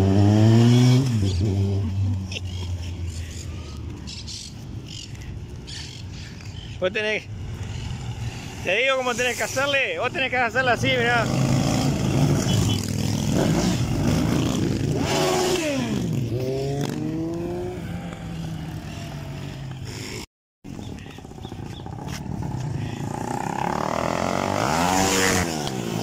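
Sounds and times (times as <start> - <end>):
motorcycles riding past: 0.0 - 20.2, 20.8 - 26.0.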